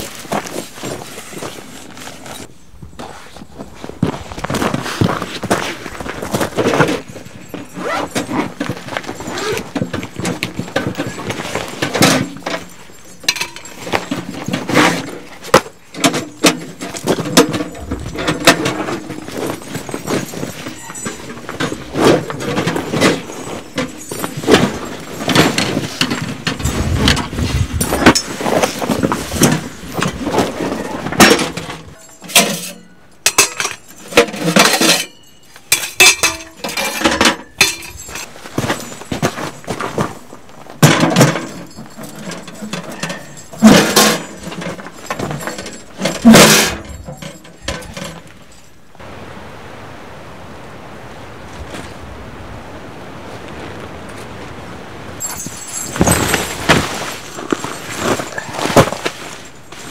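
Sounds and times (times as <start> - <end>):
footsteps on gravel: 3.0 - 10.2, 26.5 - 30.9
metal stove parts clinking: 6.6 - 39.6, 40.8 - 48.7, 55.2 - 56.8
bag set down: 55.2 - 59.9.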